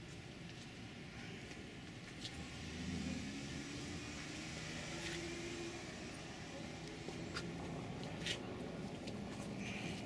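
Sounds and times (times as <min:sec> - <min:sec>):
vehicle engine running: 0:01.5 - 0:10.0.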